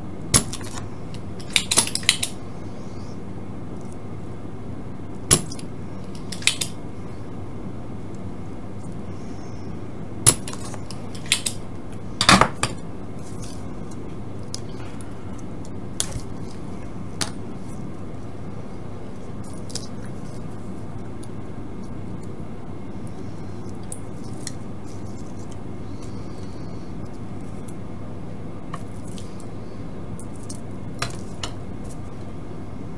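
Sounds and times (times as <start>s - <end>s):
low hum: 0.0s - 32.9s.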